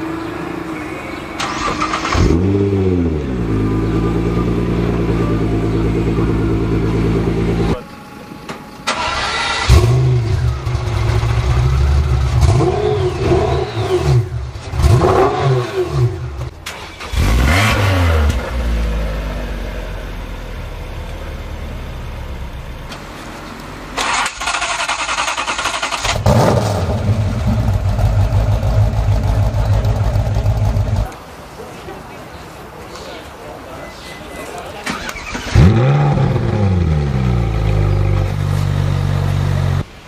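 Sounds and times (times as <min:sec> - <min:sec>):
car engine starting: 0:01.1 - 0:31.1, 0:34.8 - 0:40.0
car engine revving: 0:01.4 - 0:07.8, 0:08.9 - 0:19.7, 0:24.0 - 0:31.1, 0:34.9 - 0:39.9
car engine running steadily: 0:02.3 - 0:08.8, 0:26.1 - 0:31.1.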